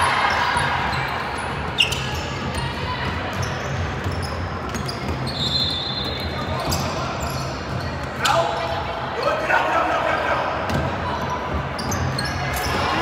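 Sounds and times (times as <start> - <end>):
crowd noise: 0.0 - 13.0
basketball bouncing on court: 1.6 - 5.5.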